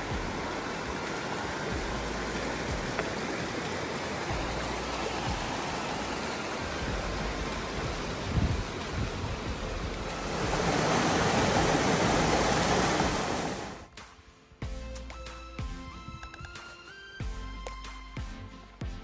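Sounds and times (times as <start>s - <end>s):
creek rushing over rocks: 0.0s - 13.9s.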